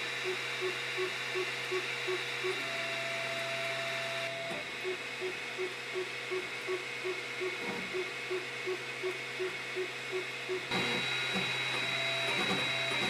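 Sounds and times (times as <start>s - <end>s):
steady hum: 0.0s - 13.0s
stepper motor whine: 0.0s - 13.0s.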